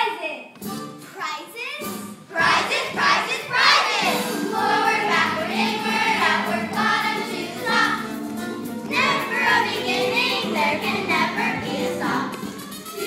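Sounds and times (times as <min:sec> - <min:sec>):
musical accompaniment: 0:00.5 - 0:01.2, 0:01.8 - 0:13.0
children singing together: 0:02.4 - 0:08.2, 0:08.9 - 0:12.6.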